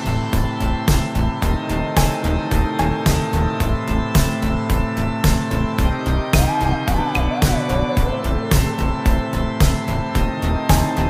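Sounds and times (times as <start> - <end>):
deep bass pulses: 0.0 - 11.0
held synth tones: 1.5 - 11.0.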